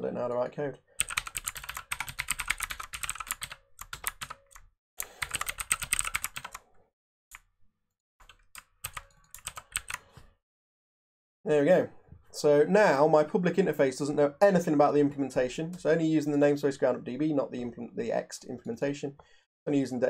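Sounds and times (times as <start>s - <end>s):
typing on computer keyboard: 1.0s - 6.6s, 8.2s - 10.1s.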